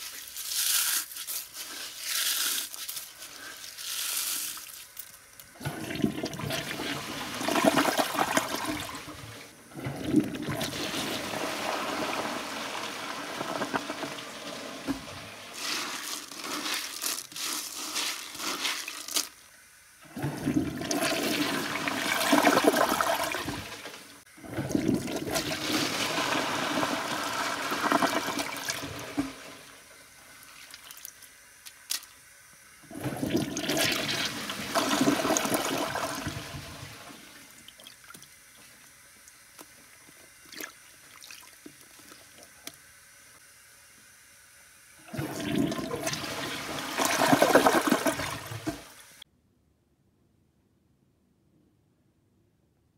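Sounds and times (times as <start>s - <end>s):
toilet flushing: 5.5s - 31.1s, 32.6s - 39.1s, 44.9s - 49.2s.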